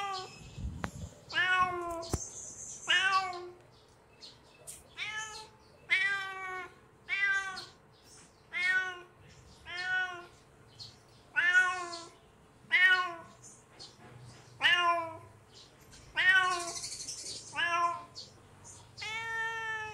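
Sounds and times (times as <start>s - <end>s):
kitten meowing: 11.4s - 12.1s.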